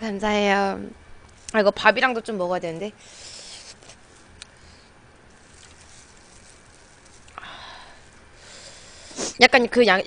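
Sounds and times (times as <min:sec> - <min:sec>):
eating sounds: 0:03.1 - 0:09.4.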